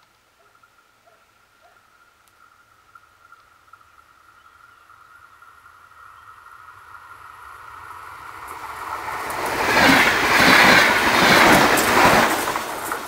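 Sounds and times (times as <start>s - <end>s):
electric train passing: 2.5s - 13.0s
wheels clicking on rails: 6.5s - 13.0s.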